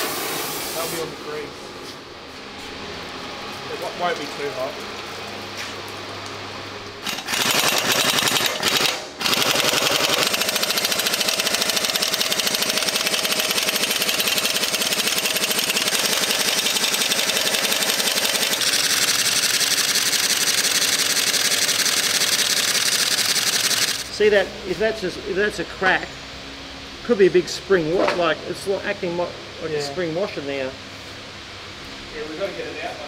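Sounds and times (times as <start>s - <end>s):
impact wrench hammering: 7.0s - 24.0s.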